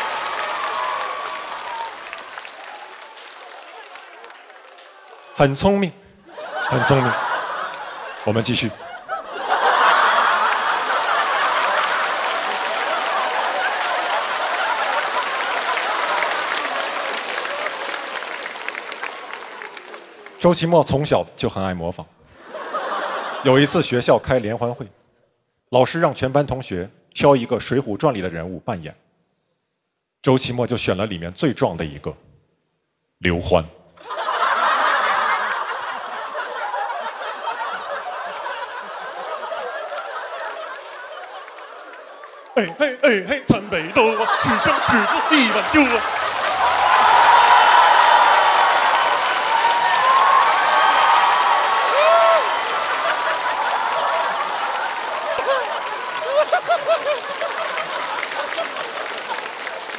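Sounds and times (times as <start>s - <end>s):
audience applauding: 0.0s - 5.7s, 6.4s - 8.8s, 9.4s - 20.9s, 34.1s - 59.9s
audience laughter: 6.2s - 17.6s, 22.4s - 23.9s, 34.0s - 49.3s, 50.1s - 59.9s.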